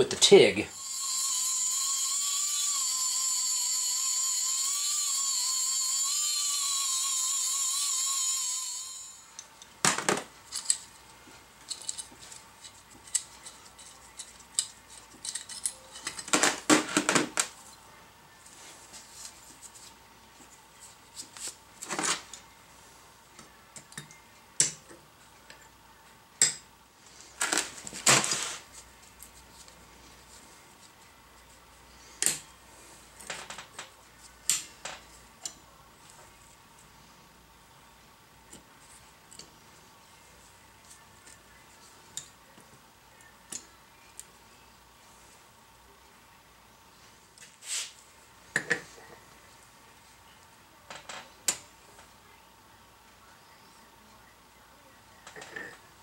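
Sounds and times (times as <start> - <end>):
die grinder whining: 0.8 - 9.3.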